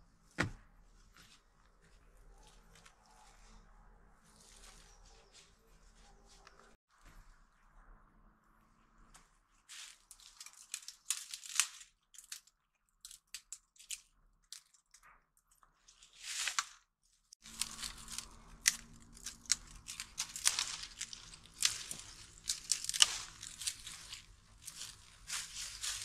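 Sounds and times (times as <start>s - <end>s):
dry twigs crackling and snapping: 9.6s - 26.0s.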